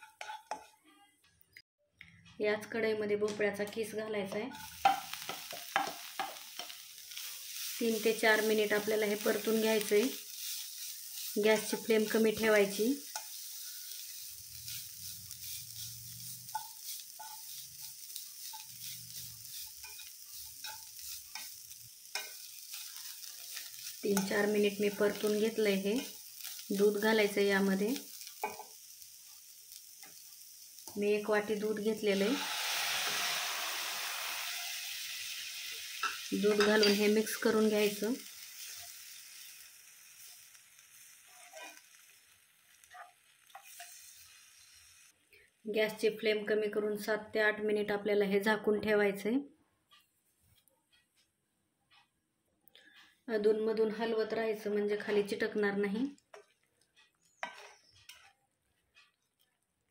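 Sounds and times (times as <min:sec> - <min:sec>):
vegetables sizzling in a pan: 0:00.0 - 0:00.8, 0:03.6 - 0:47.1, 0:53.8 - 0:58.3
spatula scraping and tapping pan: 0:00.0 - 0:00.9, 0:03.3 - 0:09.5, 0:10.1 - 0:26.7, 0:28.0 - 0:31.0, 0:36.0 - 0:39.6, 0:41.3 - 0:41.9, 0:42.8 - 0:44.2, 0:56.2 - 0:59.6
soft spatula scrapes: 0:56.4 - 0:59.6.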